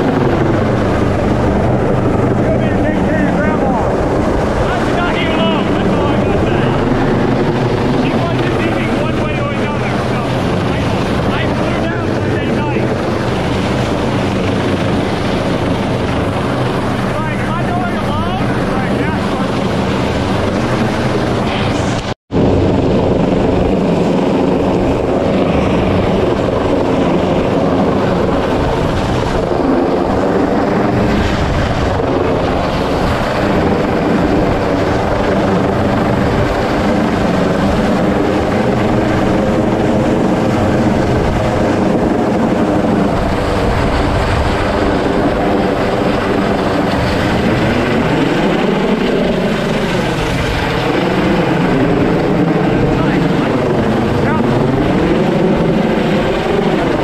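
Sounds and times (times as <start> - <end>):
helicopter rotor and turbine noise: 0.0 - 57.0
rotor wash: 0.0 - 57.0.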